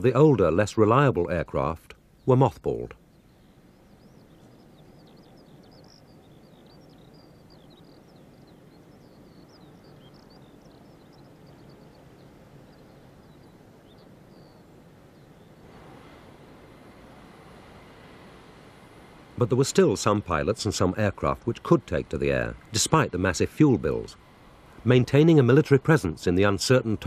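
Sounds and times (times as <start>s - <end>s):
outdoor background hiss: 0.0s - 27.0s
small birds chirping: 0.0s - 27.0s
broad rushing noise: 11.2s - 27.0s.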